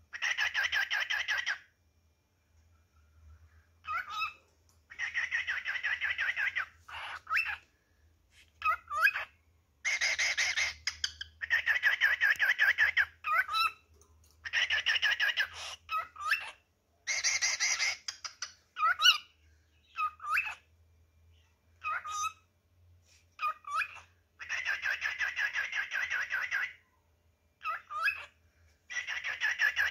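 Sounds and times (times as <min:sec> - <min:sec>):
cockatiel chattering warble: 0:04.9 - 0:07.6, 0:08.6 - 0:13.8, 0:17.1 - 0:19.2.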